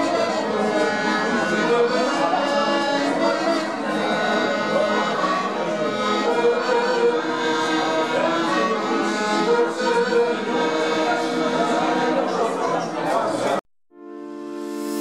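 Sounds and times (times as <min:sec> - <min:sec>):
instrumental music with sustained notes: 0:14.0 - 0:15.0.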